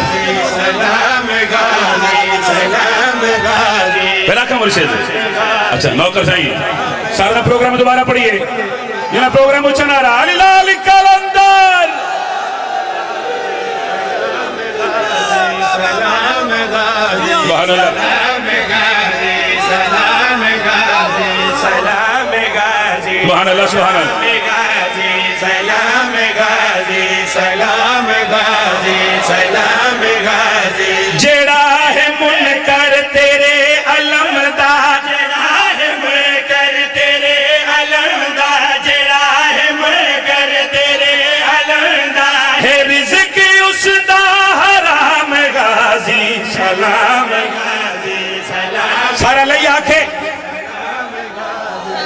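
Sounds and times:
men chanting together: 0:00.0 - 0:04.1, 0:12.0 - 0:32.5
men chanting into microphones: 0:00.0 - 0:10.4, 0:11.7 - 0:52.0.

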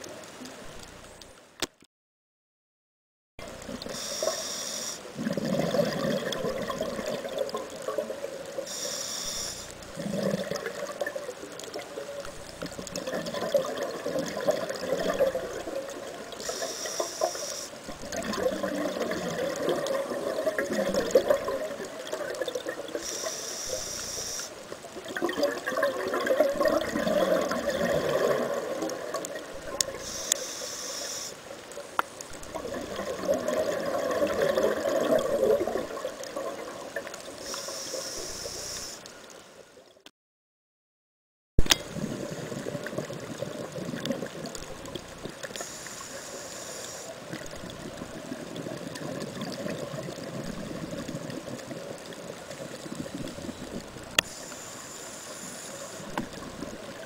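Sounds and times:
regulator inhale hisses: 0:03.8 - 0:05.1, 0:08.6 - 0:09.8, 0:16.4 - 0:17.9, 0:23.0 - 0:24.6, 0:30.0 - 0:31.4, 0:37.2 - 0:39.0, 0:45.6 - 0:47.2, 0:54.2 - 0:56.2
exhaled air bubbling: 0:05.1 - 0:30.4, 0:31.9 - 0:39.0, 0:41.6 - 0:46.2, 0:46.8 - 0:54.6, 0:55.9 - 0:57.0.

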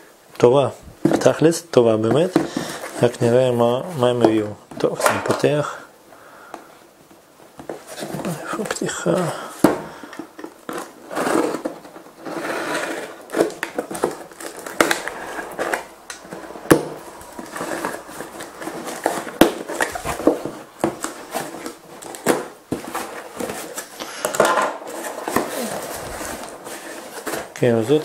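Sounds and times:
cardboard flaps pulled open: 0:24.9 - 0:27.6.

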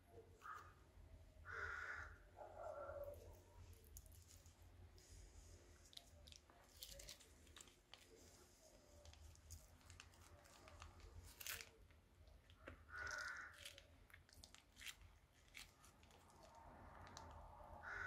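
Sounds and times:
plastic piping bag crinkling: 0:03.1 - 0:17.4
slime squish: 0:03.1 - 0:18.0.

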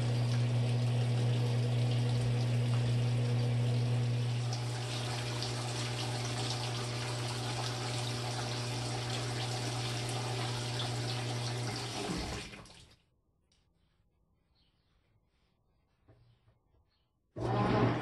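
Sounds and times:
washer low hum: 0:00.0 - 0:13.0, 0:17.4 - 0:18.0
water running into tub: 0:00.0 - 0:13.1.

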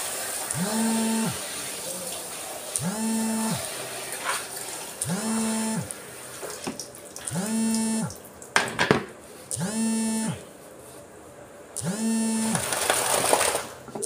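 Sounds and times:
water spraying from shower head: 0:00.0 - 0:08.2.

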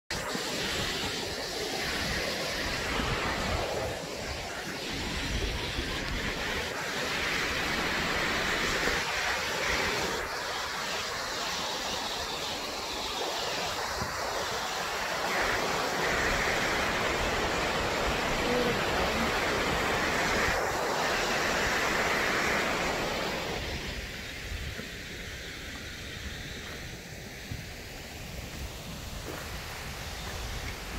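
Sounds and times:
wind rumble on microphone: 0:00.1 - 0:10.7, 0:11.6 - 0:30.9
waterfall rushing: 0:00.1 - 0:30.9.

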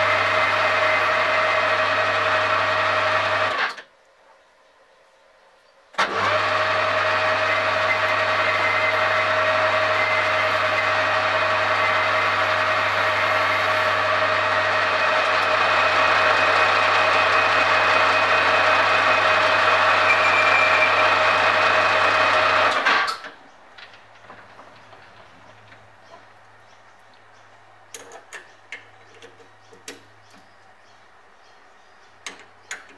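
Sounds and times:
metal lathe motor hum: 0:06.1 - 0:22.8.

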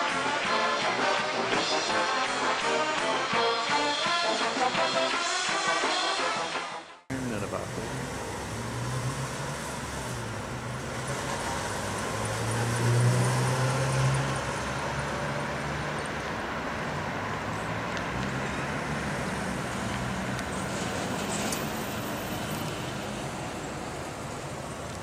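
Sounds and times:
road traffic from moving car: 0:07.1 - 0:25.0.

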